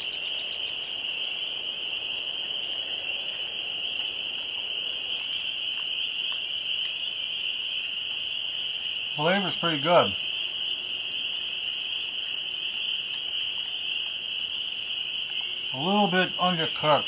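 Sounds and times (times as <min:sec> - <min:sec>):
faint eating clicks: 0:12.6 - 0:17.0.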